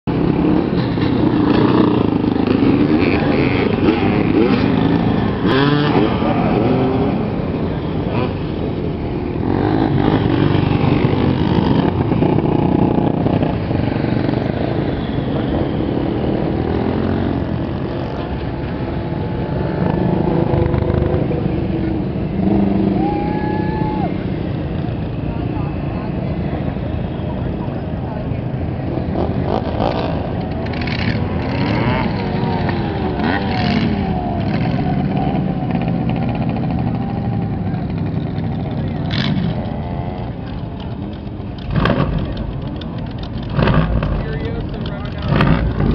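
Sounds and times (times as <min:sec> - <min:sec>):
motorcycle engines revving: 0:00.0 - 0:45.9.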